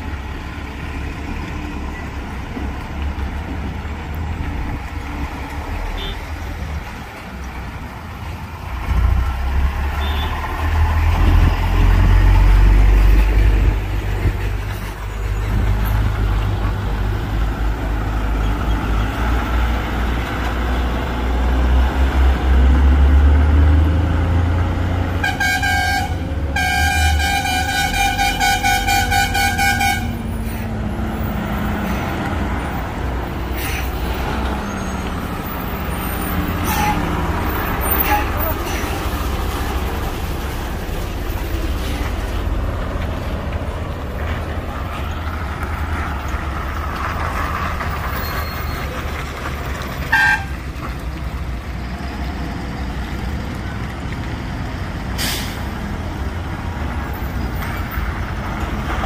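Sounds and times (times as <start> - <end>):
diesel truck engines rumbling: 0.0 - 59.0
truck horn: 5.9 - 6.3, 9.9 - 10.5, 25.1 - 30.6, 36.5 - 38.9, 50.1 - 50.6.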